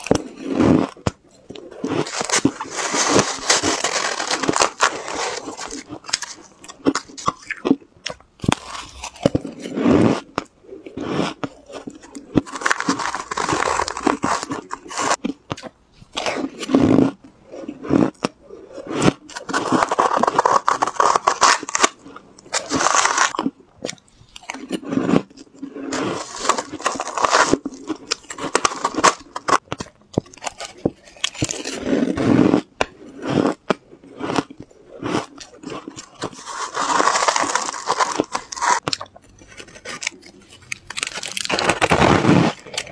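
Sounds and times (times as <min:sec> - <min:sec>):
shaved ice crunched and chewed: 0:00.0 - 0:42.9
metal spoon scraping ice in bowl: 0:25.9 - 0:27.7.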